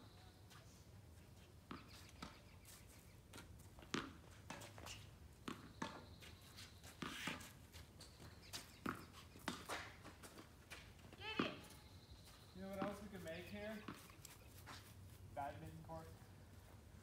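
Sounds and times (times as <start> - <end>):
ball bouncing on hard court: 3.8 - 4.9, 11.2 - 11.8
tennis ball struck by rackets: 3.8 - 6.0, 8.8 - 10.1, 11.3 - 11.8.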